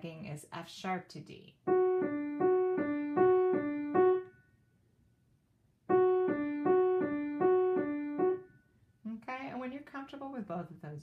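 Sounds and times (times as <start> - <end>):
piano alternating two notes: 1.7 - 4.4, 5.9 - 8.6.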